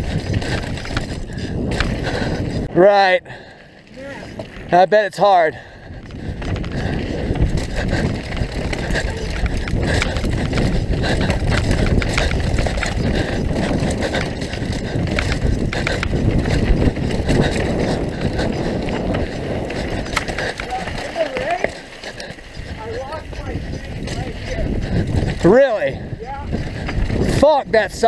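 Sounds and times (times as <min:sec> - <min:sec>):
bike knocks and rattles: 0:00.0 - 0:02.6, 0:06.0 - 0:25.6
tyre noise on dirt: 0:00.0 - 0:02.8, 0:03.8 - 0:28.0
wind on microphone: 0:00.0 - 0:04.7, 0:05.5 - 0:28.0.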